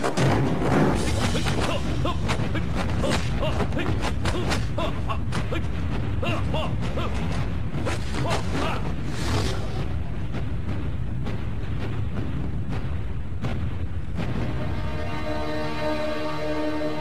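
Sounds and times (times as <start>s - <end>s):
punch and block impacts: 0.0s - 10.1s
low steady rumble: 0.0s - 17.0s
arm whooshes: 0.7s - 14.7s.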